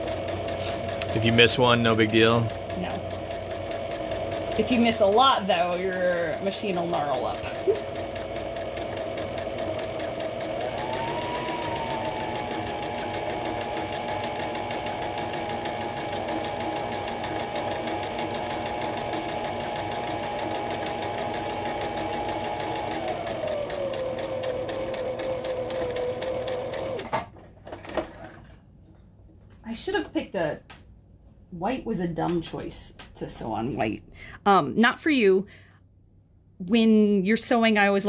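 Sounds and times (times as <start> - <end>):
electric sewing machine stitching: 0.0 - 27.3.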